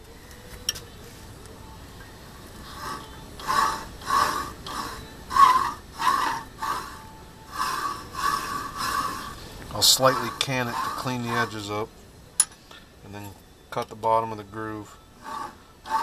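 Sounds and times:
tool scraping a groove: 0:02.6 - 0:11.6, 0:15.2 - 0:16.0.

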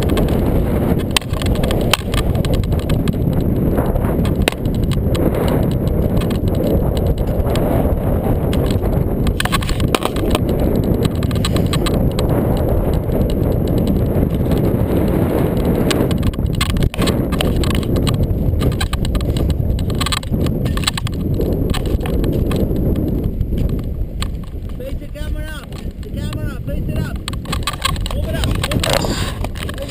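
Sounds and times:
wind buffeting microphone: 0:00.0 - 0:29.9
clicks and knocks: 0:08.5 - 0:14.6, 0:16.1 - 0:22.8, 0:27.1 - 0:29.9.

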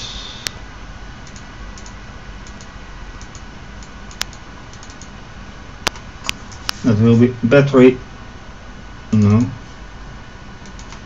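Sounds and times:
low background hum: 0:00.0 - 0:11.0
computer mouse and keyboard clicks: 0:01.2 - 0:05.1, 0:10.6 - 0:11.0.

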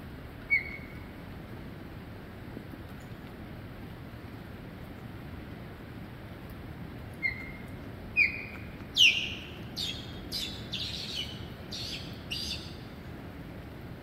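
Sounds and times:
osprey calling: 0:07.2 - 0:12.9.

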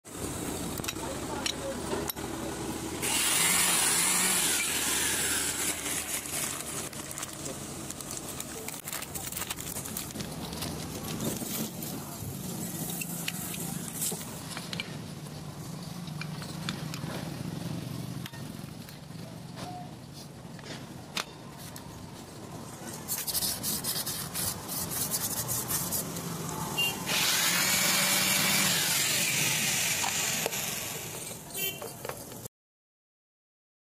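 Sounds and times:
plastic packet crinkling: 0:05.8 - 0:11.2.

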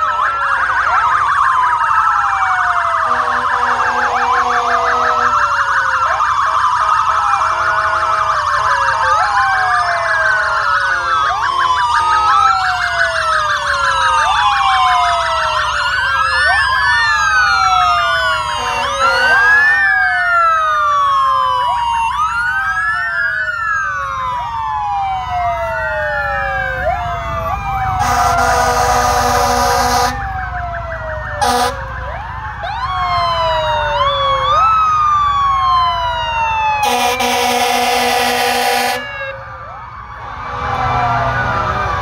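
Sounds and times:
sirens wailing: 0:00.0 - 0:42.0
fire truck air horn blasts: 0:03.0 - 0:05.4, 0:18.5 - 0:19.8, 0:28.0 - 0:30.3, 0:31.4 - 0:31.9, 0:36.8 - 0:39.2.

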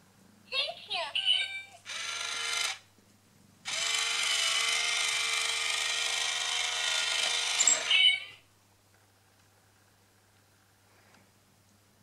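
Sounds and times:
small electric gear motor whirring: 0:01.8 - 0:02.8, 0:03.7 - 0:08.2.

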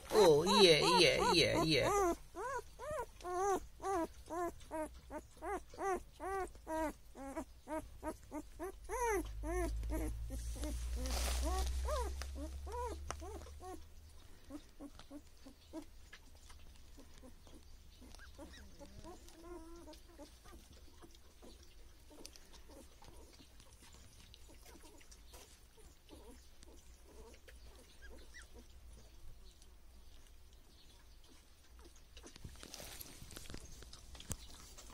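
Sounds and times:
young animals squeaking: 0:00.0 - 0:29.1
rustling on blanket: 0:08.0 - 0:15.2, 0:32.3 - 0:34.9.

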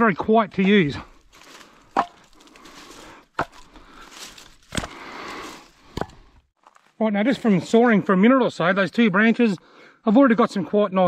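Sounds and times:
wooden branches knocking together: 0:00.6 - 0:06.9
dry leaves and twigs rustling: 0:00.6 - 0:07.6.

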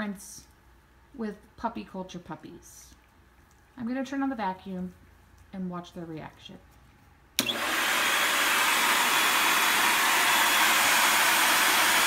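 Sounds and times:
vacuum cleaner running: 0:07.4 - 0:12.0.

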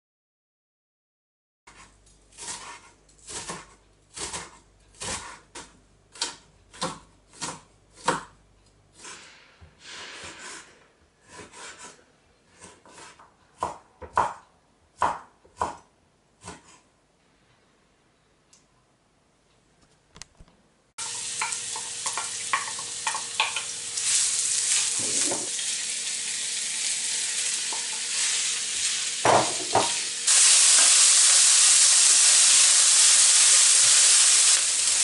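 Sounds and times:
knife chopping on wooden board: 0:02.4 - 0:08.4, 0:11.2 - 0:14.4, 0:15.0 - 0:16.8, 0:29.3 - 0:30.0.

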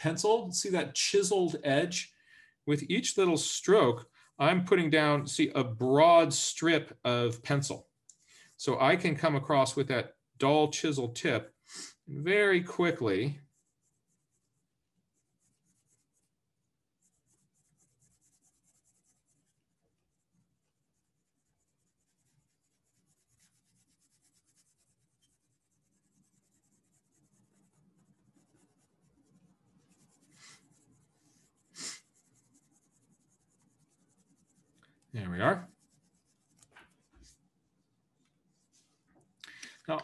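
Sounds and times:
colored pencil scratching on paper: 0:12.4 - 0:37.5.

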